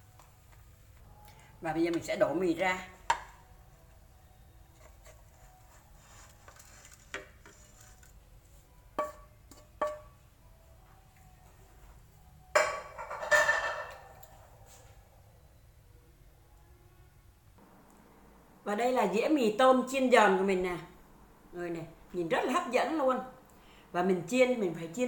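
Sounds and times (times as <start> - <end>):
frying pan knocking ceramic plate: 9.0 - 10.1, 12.6 - 13.9
cookware clatter: 12.6 - 14.1.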